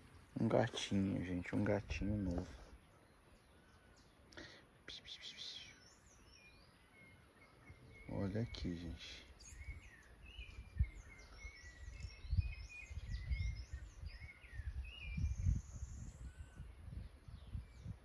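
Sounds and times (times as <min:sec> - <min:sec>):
songbirds chirping: 0:00.0 - 0:18.0
wind rumbling on microphone: 0:09.3 - 0:18.0.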